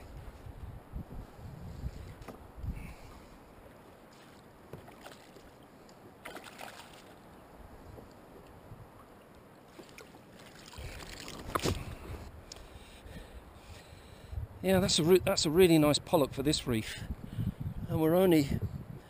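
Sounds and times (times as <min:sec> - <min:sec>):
light water splashing: 0:03.8 - 0:12.7.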